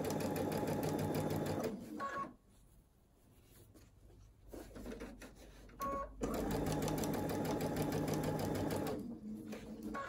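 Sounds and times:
sewing machine stitching: 0:00.0 - 0:02.0, 0:06.2 - 0:10.0.

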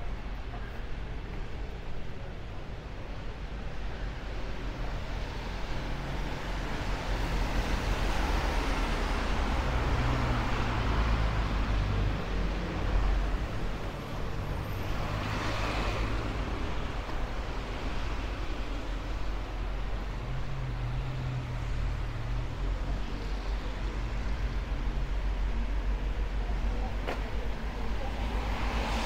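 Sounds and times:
cars driving past: 0:05.3 - 0:25.4, 0:27.1 - 0:29.0.

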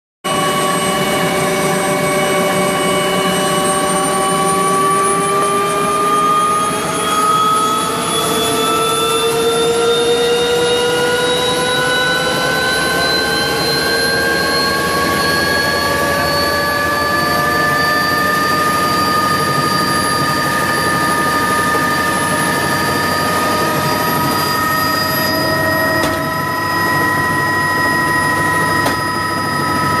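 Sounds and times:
helicopter rotor and engine noise: 0:00.3 - 0:30.0
helicopter turbine whine: 0:00.3 - 0:30.0.

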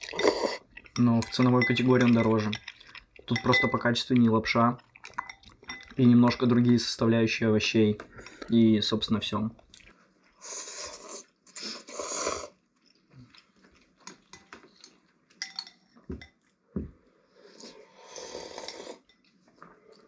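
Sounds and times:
noodles slurped: 0:17.5 - 0:19.1.

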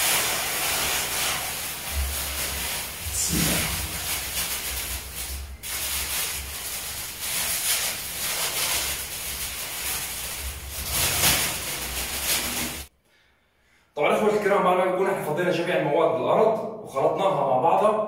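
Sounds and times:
bird seed rustling by hand: 0:00.7 - 0:12.9.

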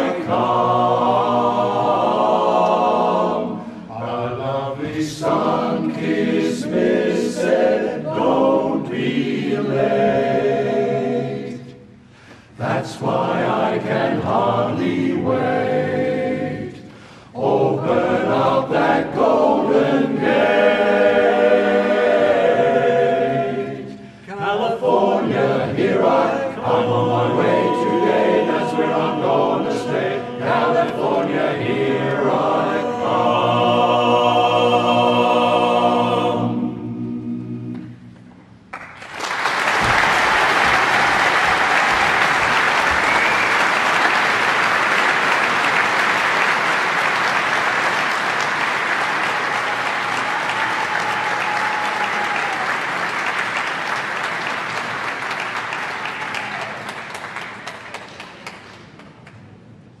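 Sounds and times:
men's chorus singing a cappella: 0:00.0 - 0:38.1
audience applause: 0:38.7 - 0:59.2.

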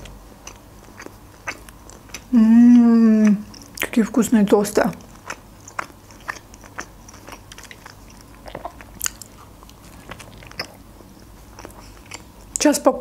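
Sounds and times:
wet mouth clicks: 0:05.1 - 0:10.8.

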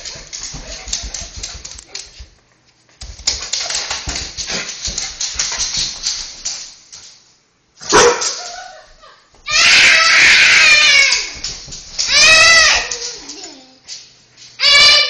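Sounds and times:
dog barking: 0:07.8 - 0:08.4.

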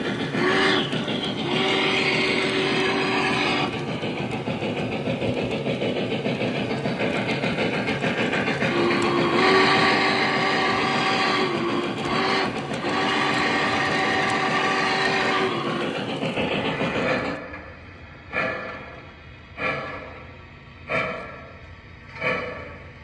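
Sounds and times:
steam chuffs: 0:00.0 - 0:23.0
train rumble: 0:00.0 - 0:23.0
steam whistle chord: 0:08.7 - 0:15.6.

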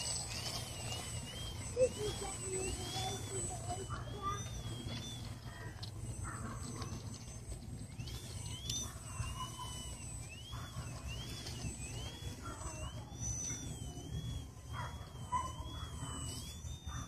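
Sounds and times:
model plane electric motor whine: 0:00.0 - 0:17.0.

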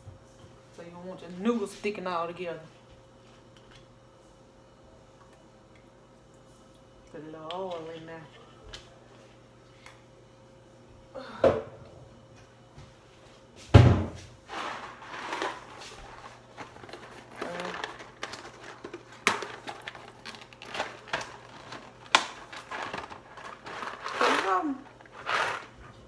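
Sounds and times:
low steady hum: 0:00.0 - 0:26.0
cupboard knocks and thuds: 0:13.7 - 0:14.2.

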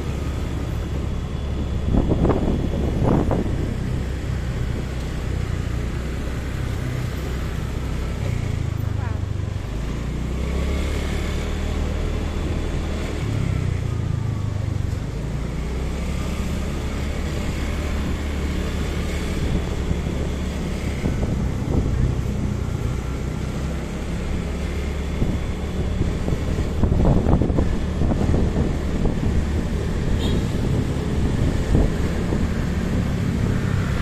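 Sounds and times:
wind noise on microphone: 0:00.0 - 0:05.8, 0:17.2 - 0:23.6, 0:24.3 - 0:34.0
motorcycle engine hum: 0:00.0 - 0:34.0.

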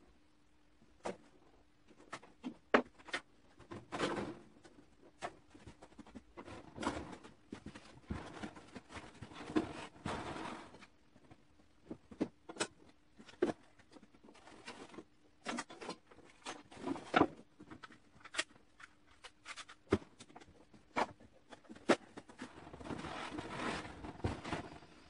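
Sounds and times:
faint steady hum: 0:00.0 - 0:25.0
plastic sheet rustling: 0:21.8 - 0:25.0.

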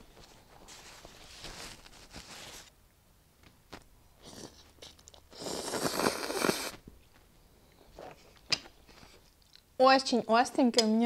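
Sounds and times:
person slurping noodles: 0:04.2 - 0:06.8
quiet chewing: 0:04.2 - 0:09.7.

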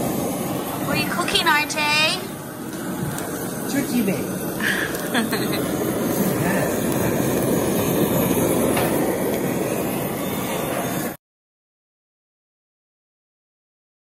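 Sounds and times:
blowtorch flame roaring hiss: 0:00.0 - 0:11.2.

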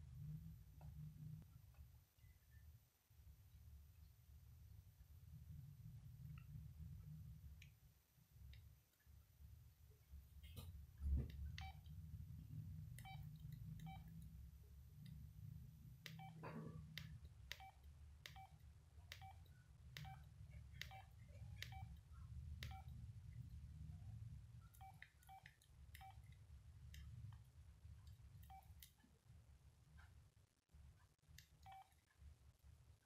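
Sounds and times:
low steady hum: 0:00.0 - 0:33.0
phone keypad beeps: 0:11.6 - 0:11.9, 0:13.0 - 0:14.2, 0:16.1 - 0:22.0, 0:22.6 - 0:23.0, 0:24.8 - 0:26.2, 0:31.6 - 0:32.0.

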